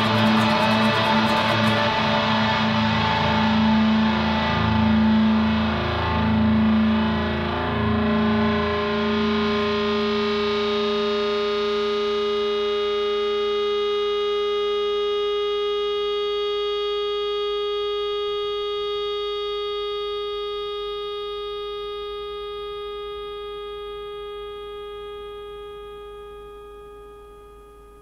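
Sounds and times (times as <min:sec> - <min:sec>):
guitar note ringing: 0:00.0 - 0:05.6.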